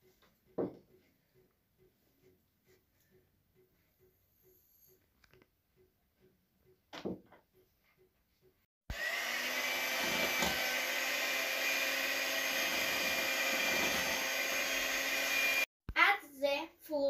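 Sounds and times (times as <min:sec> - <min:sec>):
electric hand mixer running: 0:08.9 - 0:15.7.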